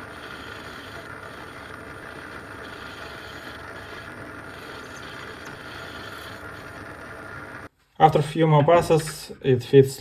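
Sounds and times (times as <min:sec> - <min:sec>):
lathe running with high whine: 0:00.0 - 0:07.7.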